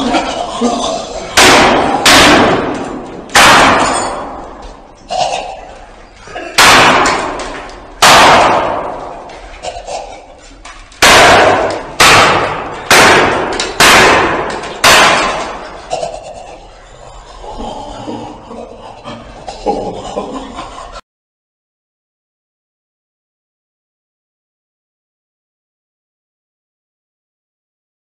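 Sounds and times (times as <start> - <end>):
loud echoing bangs: 1.2 - 4.9, 6.5 - 9.5, 11.0 - 16.0.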